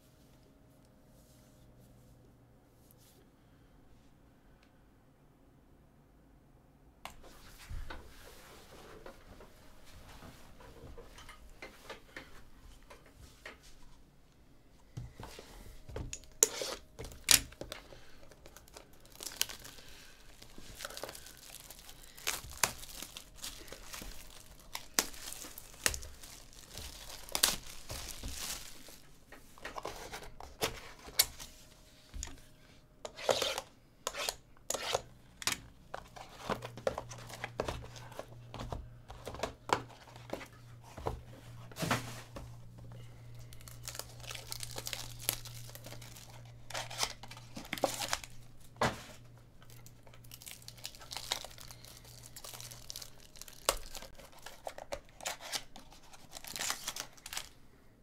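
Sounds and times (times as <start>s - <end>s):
plastic shrink wrap crinkling: 16.1s - 31.6s, 42.6s - 57.6s.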